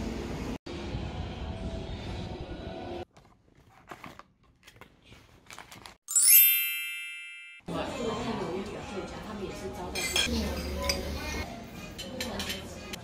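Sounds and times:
bright chime ding: 0:06.1 - 0:07.6
restaurant background noise: 0:07.6 - 0:13.0
dishes clinking: 0:09.9 - 0:13.0.

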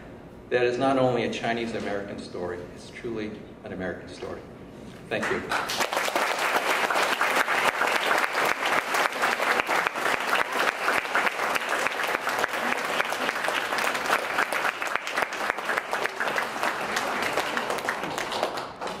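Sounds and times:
audience applauding: 0:05.2 - 0:19.0.

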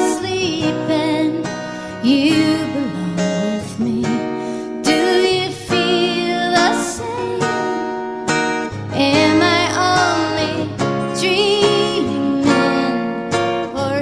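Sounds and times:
woman singing with vibrato: 0:00.0 - 0:08.1, 0:08.9 - 0:14.0
strummed acoustic guitar: 0:00.0 - 0:14.0.

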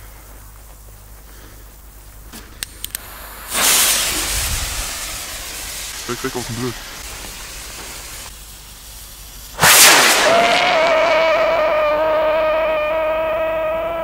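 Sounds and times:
rocket lifting off with a rush: 0:09.6 - 0:11.5
rocket whistle: 0:09.6 - 0:14.0.

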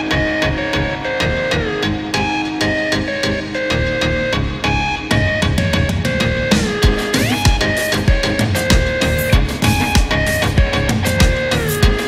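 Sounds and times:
held pitched notes: 0:00.0 - 0:12.0
drum kit beat: 0:05.4 - 0:12.0.

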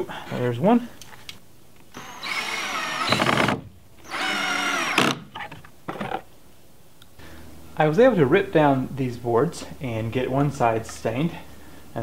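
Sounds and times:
drill driving screw into wood: 0:01.9 - 0:05.4.

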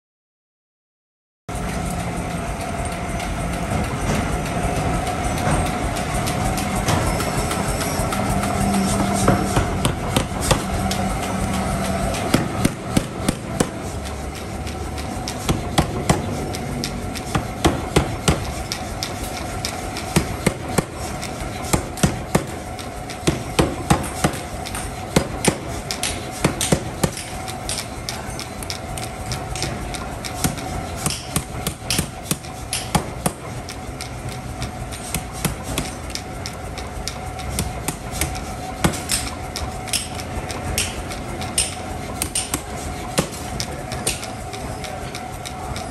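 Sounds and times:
hammer striking hot steel: 0:01.5 - 0:45.9
steady machine hum: 0:01.5 - 0:45.9.

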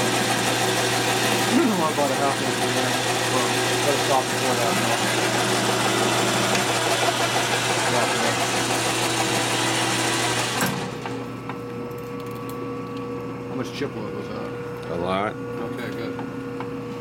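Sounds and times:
machine tool cutting metal: 0:00.0 - 0:11.2
motor hum: 0:00.0 - 0:17.0.

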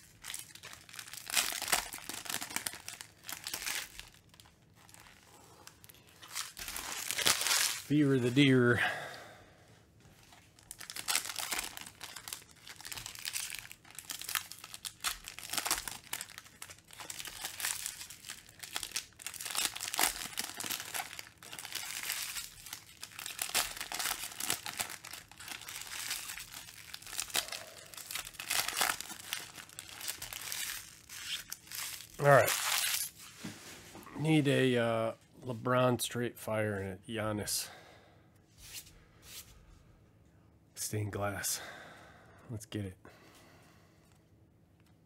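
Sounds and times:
foil wrappers crinkling: 0:00.0 - 0:08.5, 0:10.2 - 0:33.4.

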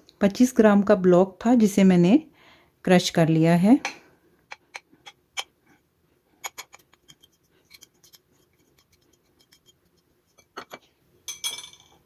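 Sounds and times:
plastic spoon tapping and scraping: 0:06.4 - 0:10.9.

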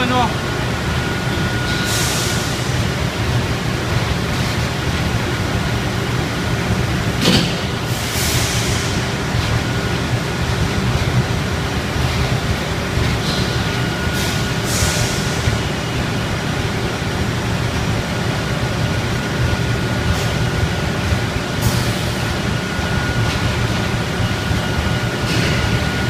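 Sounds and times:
machinery low hum: 0:00.0 - 0:26.0.

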